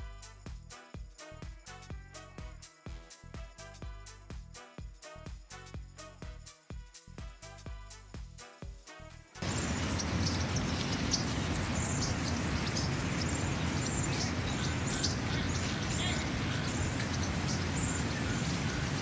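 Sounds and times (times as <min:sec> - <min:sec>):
crowd noise: 0:09.4 - 0:19.0
small birds chirping: 0:09.4 - 0:19.0
traffic hum: 0:09.4 - 0:19.0.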